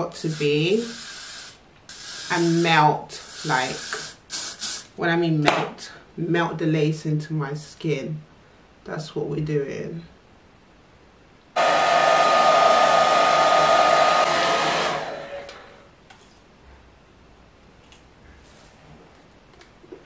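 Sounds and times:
hair dryer switch: 0:11.6 - 0:15.7
hair dryer blowing: 0:11.6 - 0:15.9.

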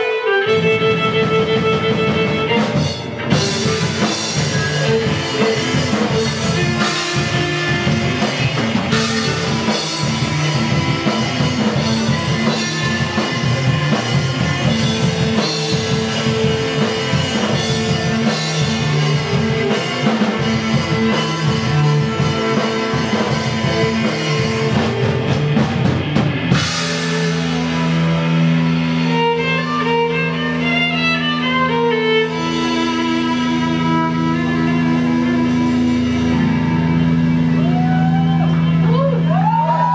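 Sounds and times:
bowed violin: 0:00.0 - 0:08.2, 0:27.1 - 0:37.3
drum kit: 0:00.0 - 0:39.9
electric guitar: 0:00.0 - 0:39.9.

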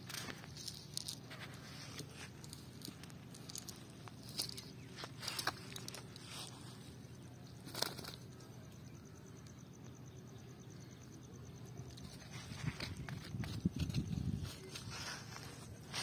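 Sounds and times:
low background hum: 0:00.0 - 0:16.0
net mesh rustling on grass: 0:12.3 - 0:16.0.

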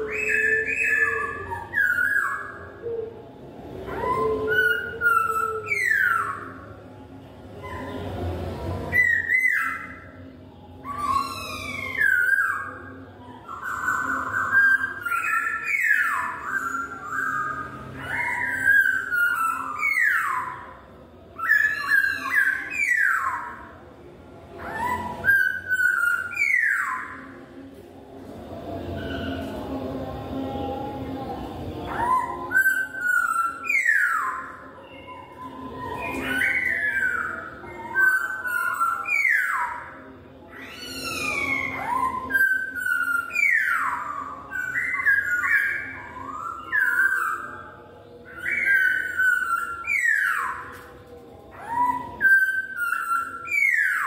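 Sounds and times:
bird singing loud whistles: 0:03.9 - 0:06.7, 0:21.4 - 0:23.6, 0:24.6 - 0:27.3, 0:31.9 - 0:50.9, 0:51.5 - 0:54.0.

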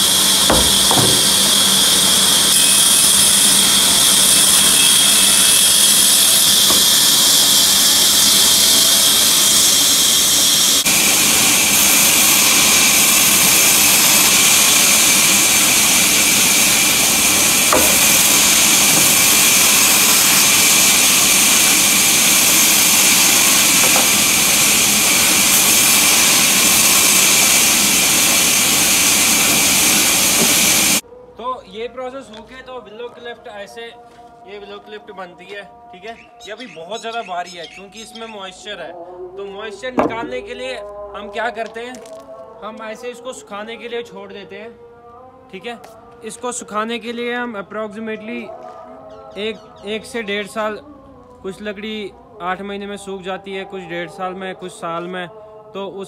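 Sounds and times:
band saw cutting wood: 0:00.0 - 0:31.0, 0:40.0 - 0:40.4.

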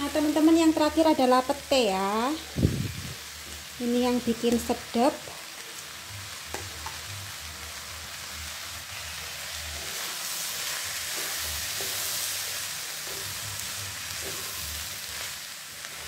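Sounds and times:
vegetables sizzling in oil: 0:00.0 - 0:16.0
wooden spatula scraping a wok: 0:09.1 - 0:16.0.

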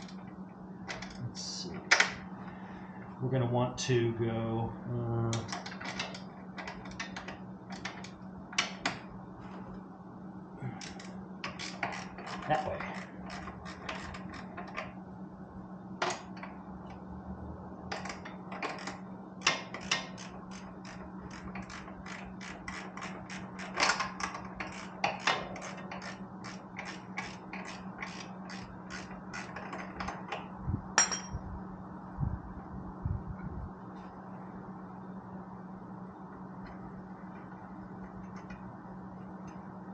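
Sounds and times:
hand ratchet clicking: 0:10.8 - 0:14.8, 0:18.0 - 0:30.2.

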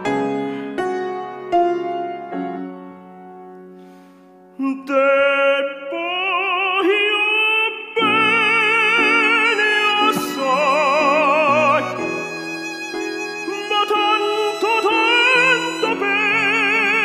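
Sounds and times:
piano chords: 0:00.0 - 0:17.0
tenor singing operatically: 0:04.6 - 0:17.0.

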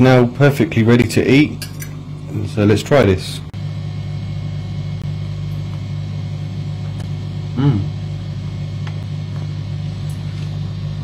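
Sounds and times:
low hum: 0:00.0 - 0:11.0
man humming while chewing: 0:07.4 - 0:08.2.

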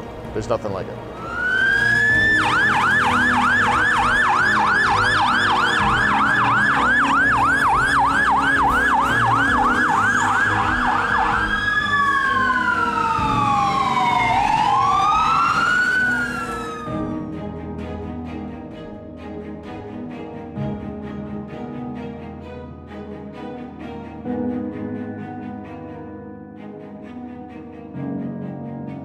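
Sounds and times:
fire truck siren: 0:01.1 - 0:17.2.

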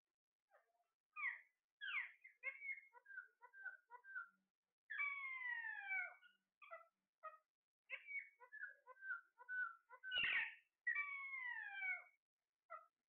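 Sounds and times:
parakeet squawk: 0:01.2 - 0:04.2, 0:04.9 - 0:12.9
parakeets chirping: 0:07.9 - 0:12.0
parakeet whistled call: 0:09.6 - 0:12.0.

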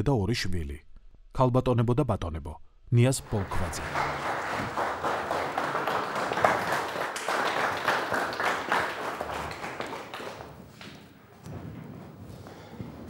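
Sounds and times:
audience applauding: 0:03.2 - 0:11.1.

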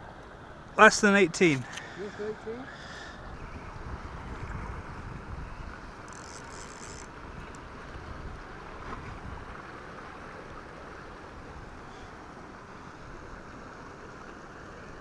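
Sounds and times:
wind noise on microphone: 0:03.4 - 0:09.5.

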